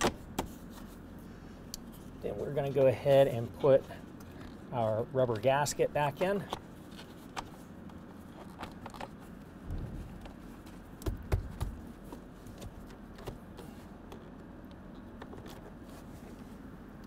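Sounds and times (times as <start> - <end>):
dull thumps: 11.0 - 11.9.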